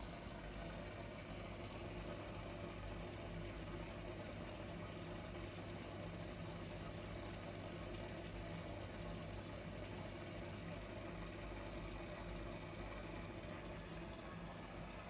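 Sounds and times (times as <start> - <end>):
aquarium equipment humming: 0.0 - 15.0.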